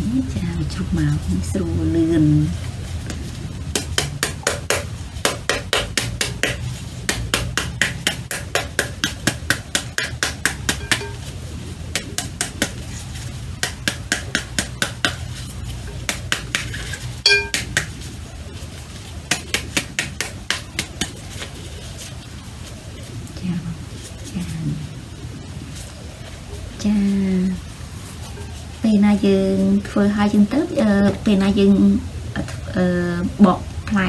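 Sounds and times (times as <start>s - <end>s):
spoon smacking pomegranate: 10.0s - 11.2s, 16.1s - 17.9s
ringing clink on glass bowl: 10.8s - 11.2s, 17.2s - 17.6s.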